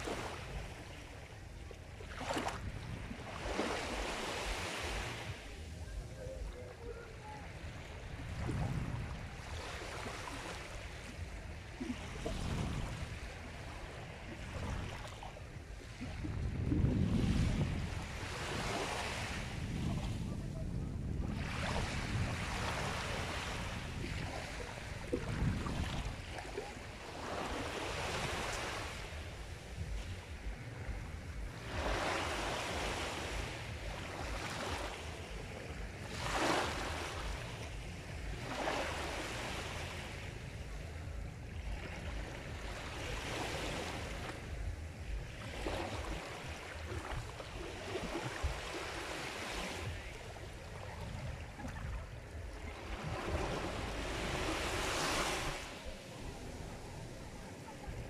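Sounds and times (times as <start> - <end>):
waves breaking: 0.0 - 58.0
steady low rumble: 19.4 - 27.2, 28.9 - 48.9, 55.8 - 58.0.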